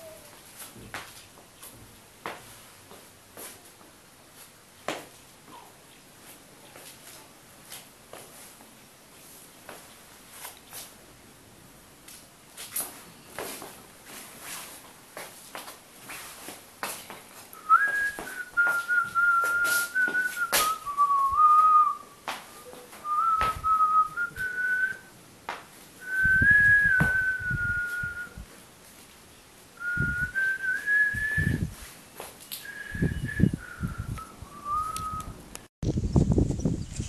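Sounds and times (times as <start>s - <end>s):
person whistling a tune: 17.6s - 25.1s, 26.0s - 28.4s, 29.8s - 31.7s, 32.6s - 35.3s.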